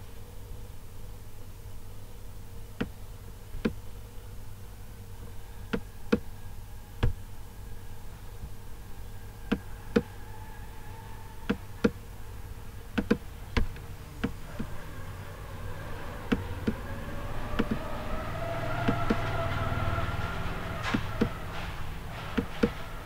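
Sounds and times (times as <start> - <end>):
steady low hum: 0.0 - 23.0.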